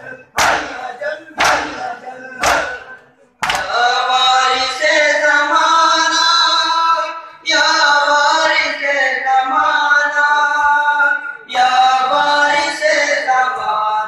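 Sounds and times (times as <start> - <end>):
men chanting a lament: 0.0 - 14.0
sharp slap: 0.4 - 3.8.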